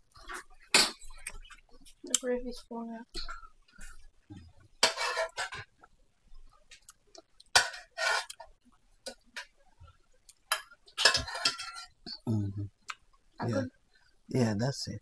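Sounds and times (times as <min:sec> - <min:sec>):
metal spoon scraping a pan: 0:04.8 - 0:05.7, 0:07.5 - 0:08.5, 0:10.5 - 0:12.0.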